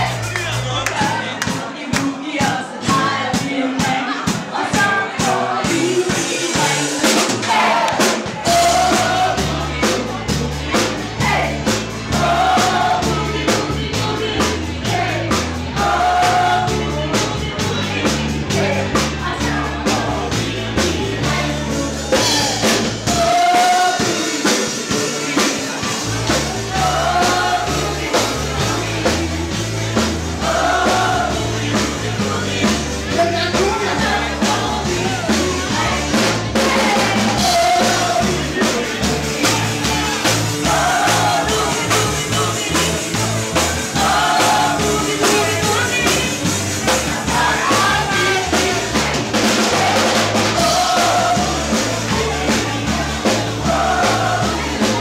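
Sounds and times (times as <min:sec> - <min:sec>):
bass line: 0:00.0 - 0:55.0
dancers singing along: 0:00.0 - 0:55.0
drums: 0:00.0 - 0:55.0
live band playing boogie-woogie: 0:00.0 - 0:55.0
person singing: 0:00.0 - 0:55.0.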